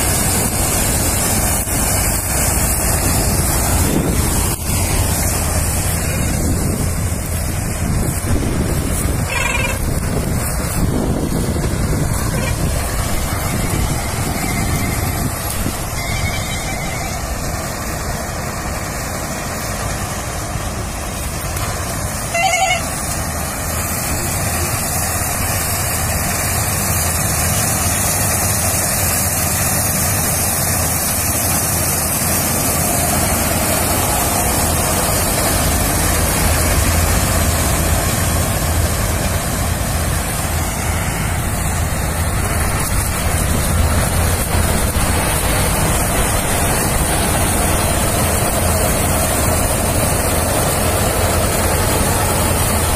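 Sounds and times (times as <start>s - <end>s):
combine harvester running: 0.0s - 52.9s
brief pitched sound: 9.2s - 10.0s.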